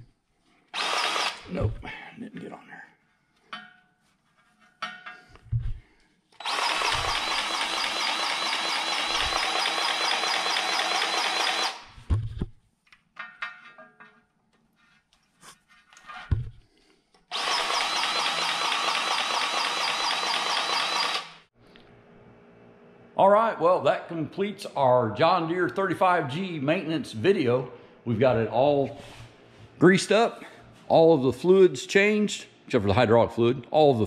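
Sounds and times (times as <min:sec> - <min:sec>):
grease gun motor running: 0:00.8 - 0:01.4, 0:06.4 - 0:11.8, 0:17.3 - 0:21.5.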